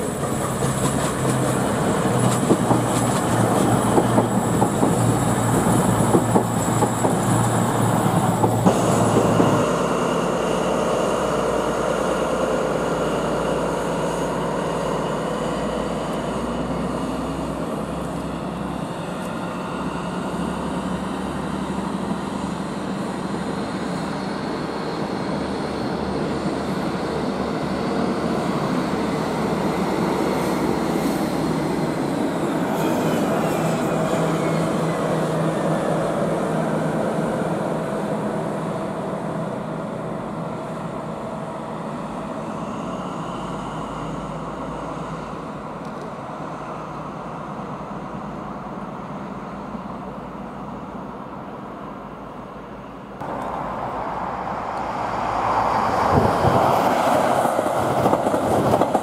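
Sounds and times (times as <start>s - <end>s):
train running noise: 0.0s - 59.0s.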